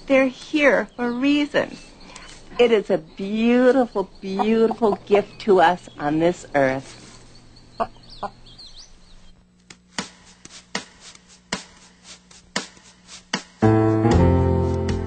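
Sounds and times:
chicken clucking: 4.0s - 5.4s.

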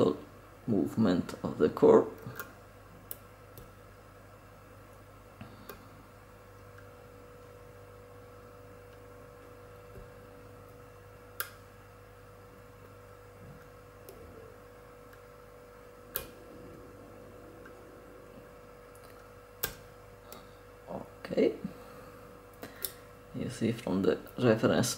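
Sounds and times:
faint hum: 0.0s - 24.9s.

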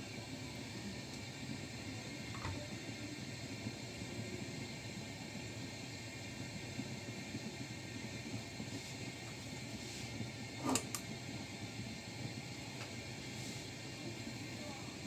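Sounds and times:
fan whirring: 0.0s - 15.0s.

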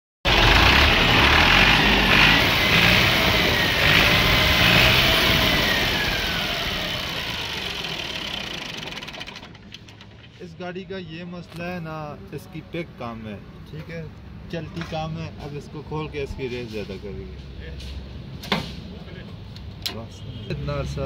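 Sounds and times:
tractor diesel engine running: 0.3s - 10.3s.

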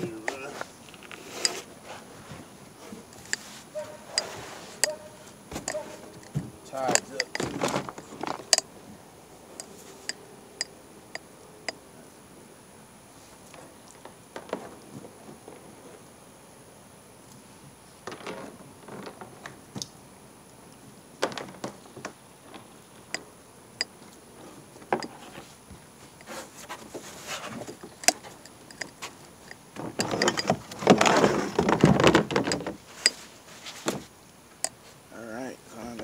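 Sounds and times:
rattling and scraping: 0.0s - 8.7s, 26.2s - 34.8s
gear clicks and knocks: 5.6s - 8.7s, 27.5s - 33.2s.

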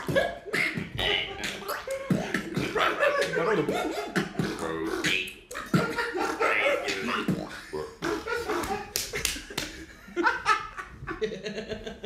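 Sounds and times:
beatboxed animal imitation: 0.0s - 9.2s.

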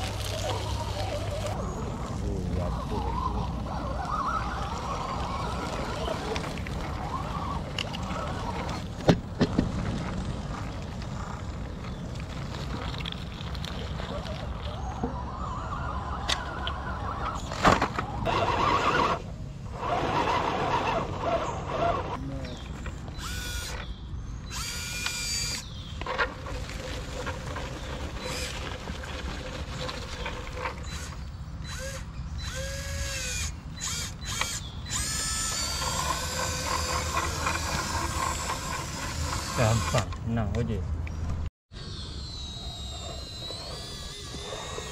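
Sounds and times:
electric motor whining in bursts: 18.2s - 25.8s, 30.8s - 40.2s.

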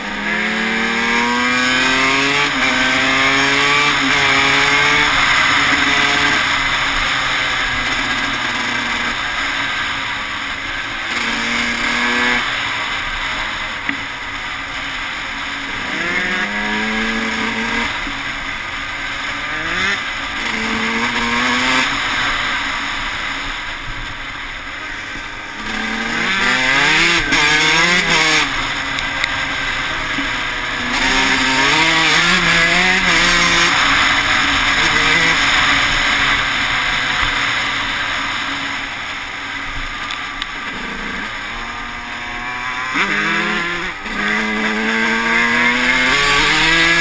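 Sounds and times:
dirt bike engine revving: 0.0s - 47.0s.

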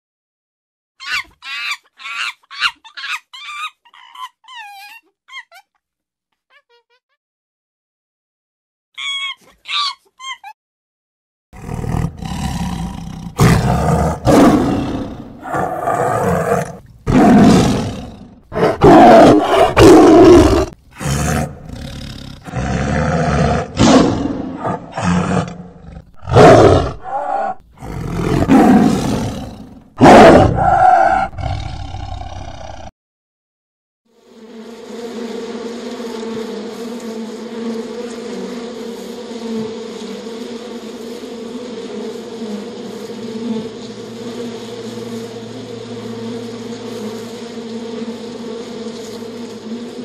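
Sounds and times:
tiger roaring and growling: 11.6s - 32.9s.

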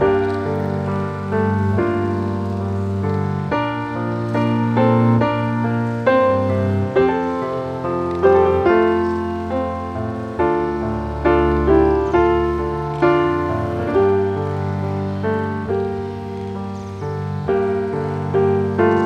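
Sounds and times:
slow piano music: 0.0s - 19.0s.

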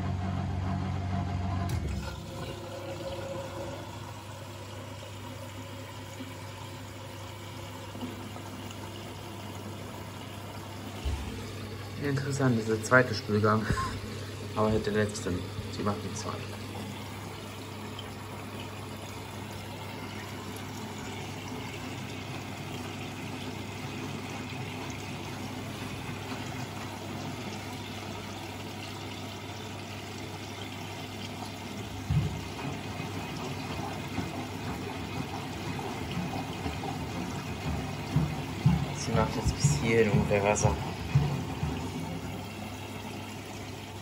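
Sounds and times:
low machine hum: 0.0s - 44.0s
water pouring into washing machine: 0.0s - 44.0s
water sloshing in drum: 1.7s - 44.0s
low knocks in drum: 32.0s - 32.8s, 36.1s - 42.3s.

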